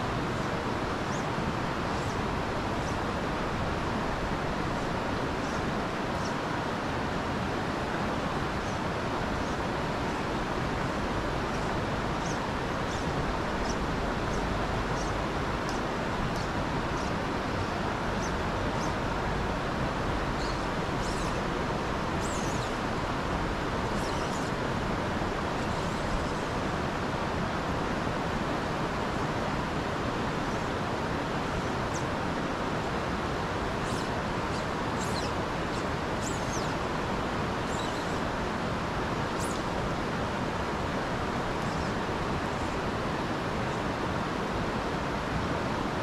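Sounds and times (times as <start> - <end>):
creek flowing over stones: 0.0 - 46.0
faint high bird chirps: 37.6 - 38.2.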